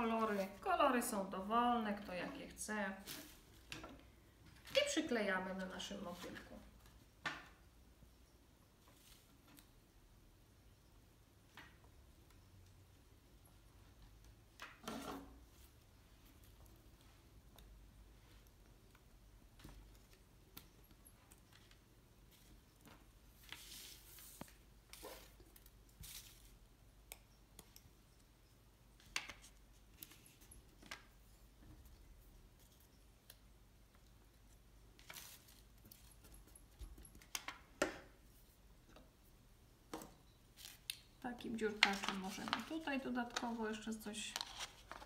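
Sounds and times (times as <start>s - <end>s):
soft paper rustles: 21.2s - 26.6s, 29.0s - 32.9s, 34.5s - 37.4s, 41.5s - 45.0s.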